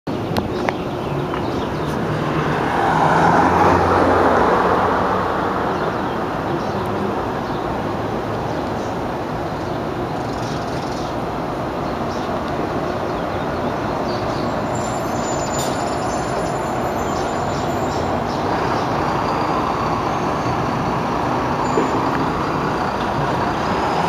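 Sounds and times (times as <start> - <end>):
city traffic noise: 0.1 - 24.0
vehicle engine hum: 0.1 - 24.0.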